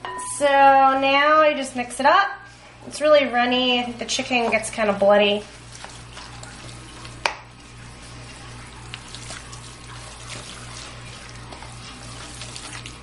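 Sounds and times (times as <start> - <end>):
wet squelching stirring with spoon: 3.6 - 13.0.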